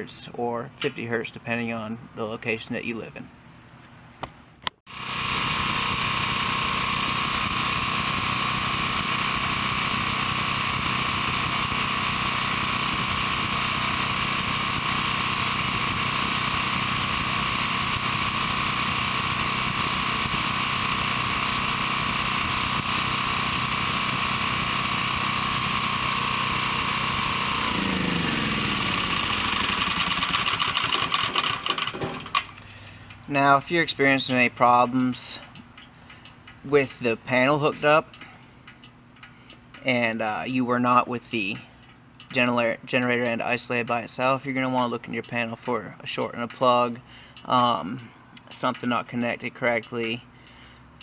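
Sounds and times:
generator engine running: 4.9s - 51.0s.

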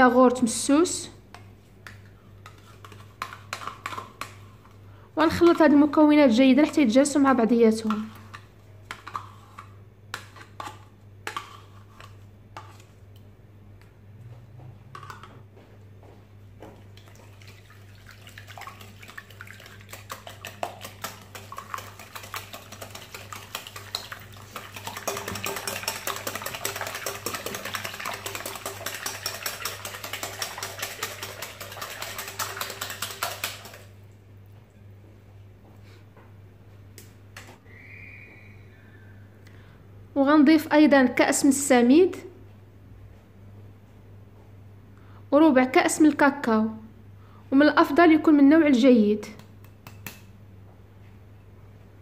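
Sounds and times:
fork beating eggs in glass bowl: 2.4s - 5.9s, 17.0s - 34.0s.

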